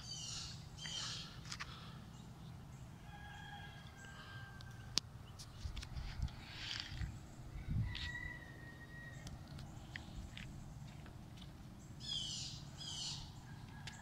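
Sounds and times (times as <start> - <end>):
thin drawn-out bird call: 0.0 - 1.9
harsh bird calls: 0.0 - 5.7, 11.8 - 14.0.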